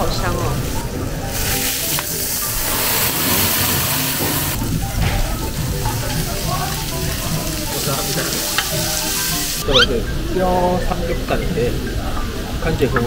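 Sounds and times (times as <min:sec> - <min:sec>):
quiet background music: 0:00.0 - 0:13.0
meat sizzling on griddle: 0:01.2 - 0:09.9.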